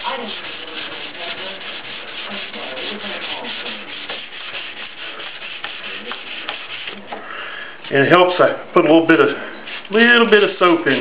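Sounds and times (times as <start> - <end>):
wet sandpaper rubbing: 0.0 - 7.2, 9.7 - 11.0.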